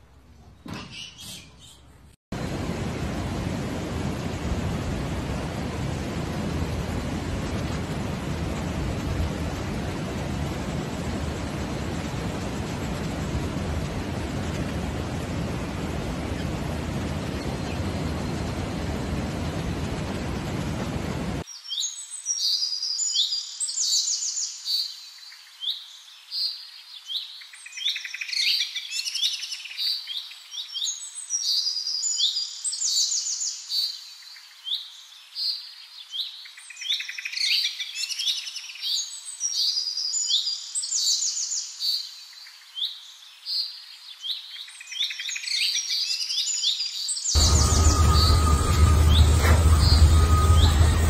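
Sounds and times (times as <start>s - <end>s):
small birds singing: 0.6s - 2.0s, 15.6s - 19.8s.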